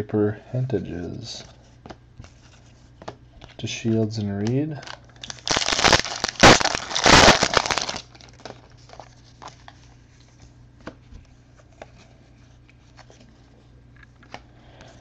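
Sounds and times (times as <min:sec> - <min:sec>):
foil wrapper tearing and crinkling: 0:04.8 - 0:09.2.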